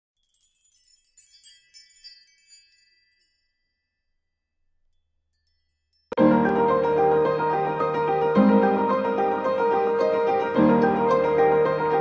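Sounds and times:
tinkling bell-like chime: 0.2 - 6.2.

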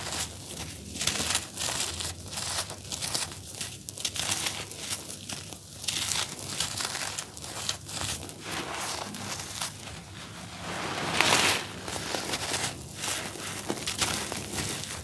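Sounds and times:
hands crumbling charcoal powder: 0.0 - 15.0
gritty rush of powder: 5.8 - 15.0.

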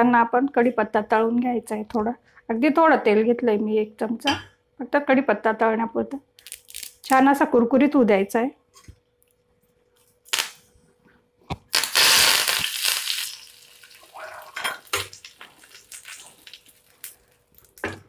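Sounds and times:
leaves sizzling in hot oil: 11.7 - 17.6.

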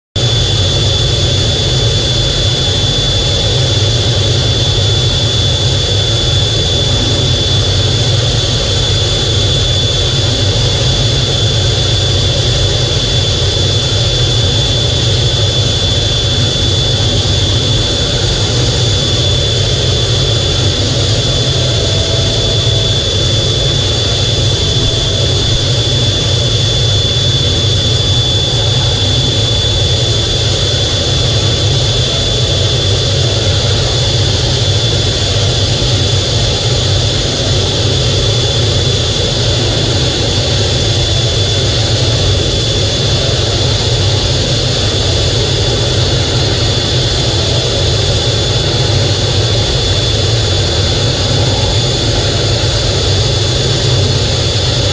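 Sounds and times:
high jet whine: 0.2 - 54.9
jet engines rumbling in cockpit: 0.2 - 54.9.

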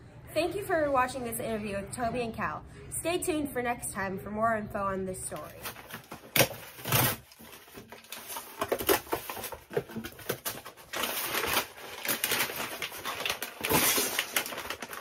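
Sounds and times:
cardboard box rummaging: 5.4 - 15.0
plastic bag crinkling: 5.4 - 15.0.

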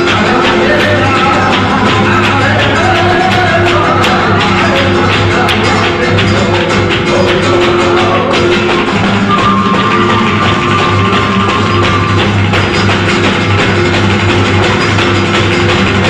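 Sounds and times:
flamenco guitar: 0.0 - 16.0
percussive hand claps: 0.0 - 16.0
held tone: 7.1 - 13.0.

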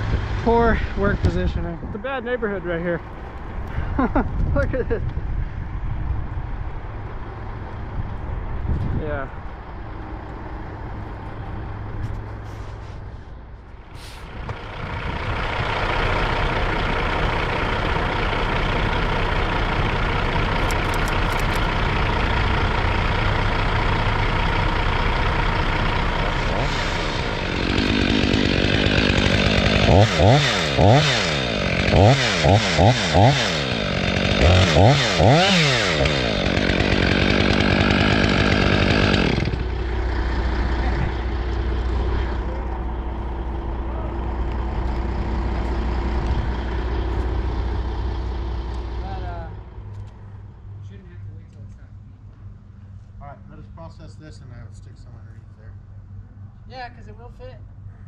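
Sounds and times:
truck engine running: 0.0 - 58.0
chainsaw revving: 14.7 - 22.8, 25.5 - 42.4.

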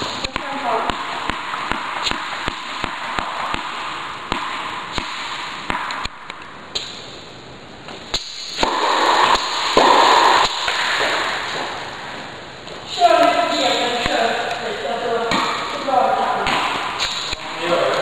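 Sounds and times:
racket striking ball: 0.0 - 7.1, 8.1 - 12.2, 15.3 - 15.8, 16.4 - 17.5
tennis ball bouncing on floor: 0.2 - 7.0, 8.1 - 11.9, 15.3 - 15.7, 16.4 - 17.5.

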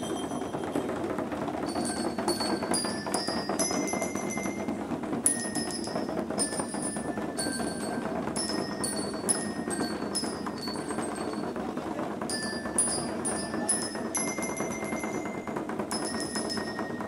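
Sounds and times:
bell lyres ringing melody: 0.0 - 17.0.

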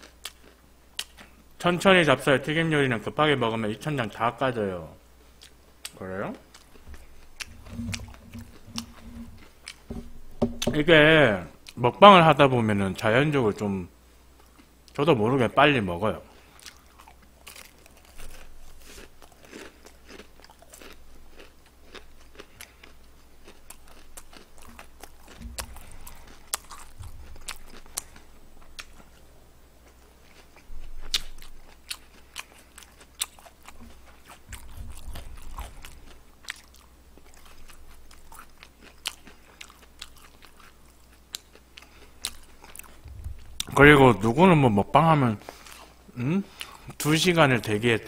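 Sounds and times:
wet chewing: 5.4 - 10.7, 16.4 - 44.3
dull low thumps: 6.8 - 11.1, 43.0 - 44.2
crunching fried chicken: 16.3 - 29.2, 29.8 - 44.3.

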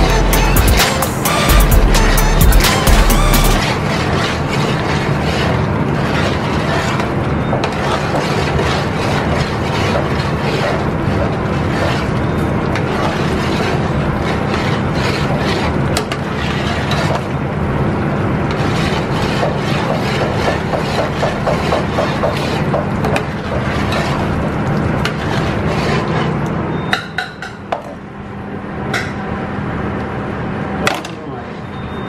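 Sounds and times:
metal spoon scraping a pot: 0.0 - 17.4, 18.4 - 26.4
loud steady kitchen roar: 0.0 - 32.0.

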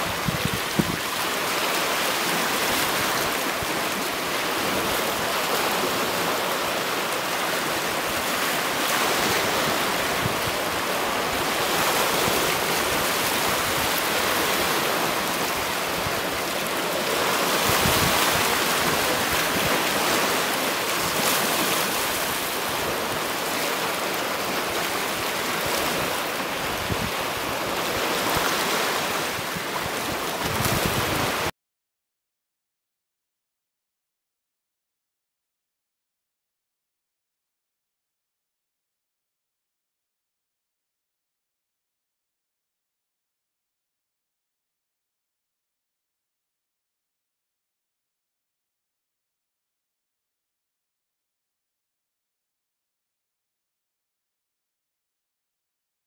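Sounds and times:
waves lapping on rocks: 0.0 - 31.5.

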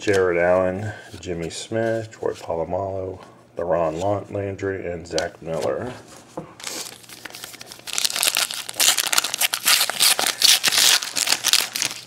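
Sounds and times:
foil wrapper tearing and crinkling: 6.6 - 12.0.

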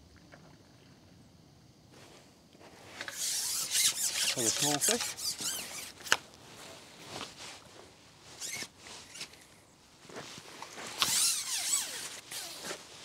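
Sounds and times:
soft rustling: 1.9 - 13.0
loud squeaky rub: 3.1 - 6.2, 8.4 - 9.2, 10.9 - 12.8.

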